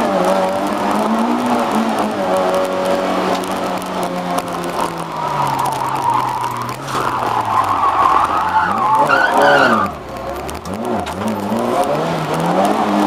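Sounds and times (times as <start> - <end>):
car engine revving: 0.0 - 13.0
tyres squealing: 3.4 - 10.4.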